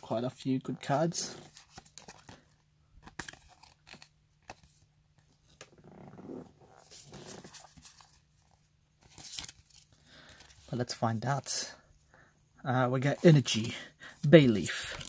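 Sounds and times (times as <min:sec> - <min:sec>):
cards sliding and shuffling: 0:01.2 - 0:05.7, 0:06.8 - 0:10.7.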